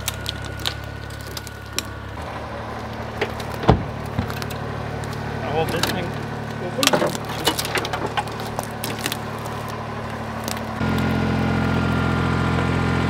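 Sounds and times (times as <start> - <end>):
engine running: 0.0 - 13.0
clicks and knocks: 3.2 - 9.7.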